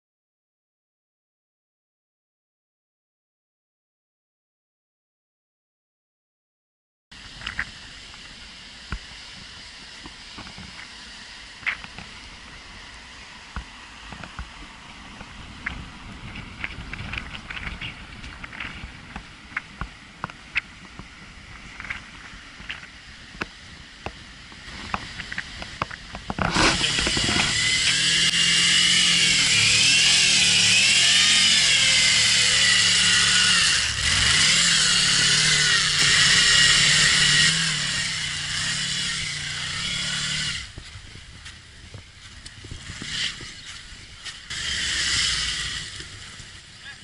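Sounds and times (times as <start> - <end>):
motorcycle engine revving high: 26.4 - 47.0.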